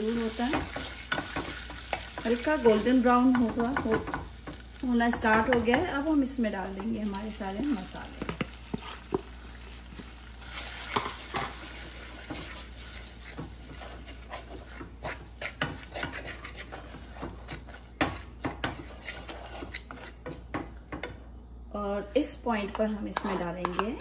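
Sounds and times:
low frying sizzle: 0.0s - 24.0s
wooden spoon scraping a saucepan: 0.1s - 21.2s, 22.6s - 24.0s
spoon knocking against pan: 3.3s - 5.9s.

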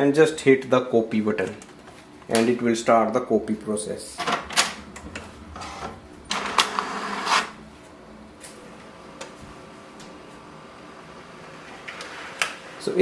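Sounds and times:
printer whirring and clatter: 4.2s - 7.6s, 9.1s - 13.0s.

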